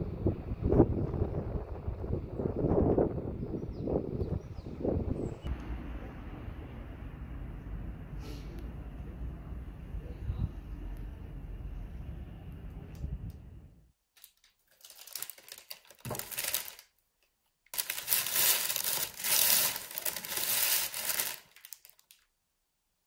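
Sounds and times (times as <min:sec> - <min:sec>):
low background rumble: 0:00.0 - 0:13.9
crackling crinkling handling noise: 0:14.1 - 0:22.3.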